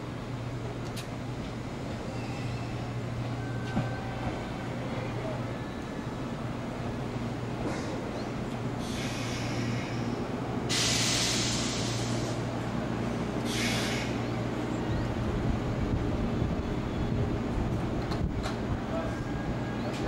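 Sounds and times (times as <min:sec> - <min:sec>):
electric train equipment hum: 0:00.0 - 0:20.0
compressed air hissing: 0:08.8 - 0:12.5, 0:13.4 - 0:14.2.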